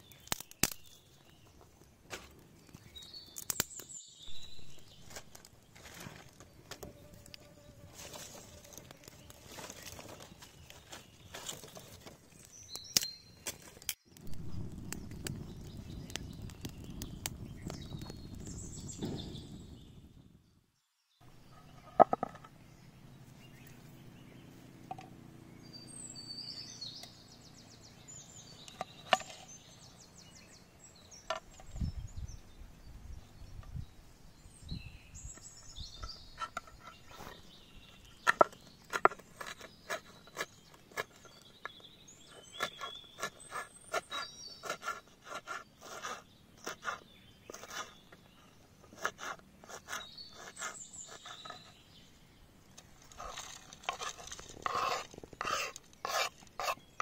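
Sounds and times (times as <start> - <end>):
birds chirping: 0.0 - 20.6, 21.2 - 57.0.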